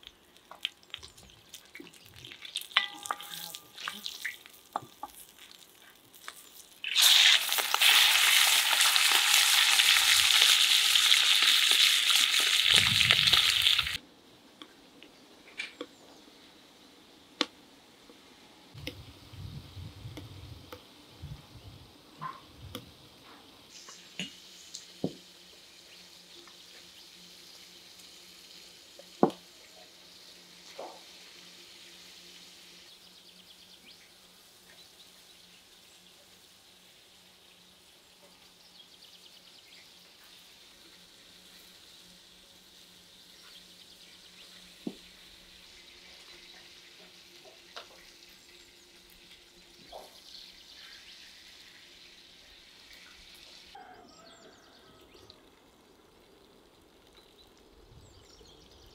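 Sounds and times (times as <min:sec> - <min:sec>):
meat sizzling in a pan: 0:00.0 - 0:14.0, 0:23.6 - 0:32.9.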